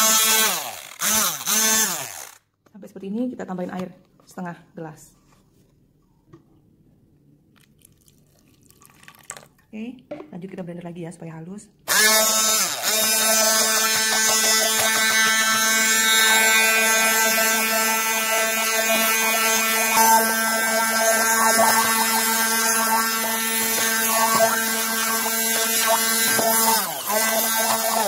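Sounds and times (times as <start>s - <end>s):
electric blender running: 0.0s - 2.4s, 11.9s - 28.0s.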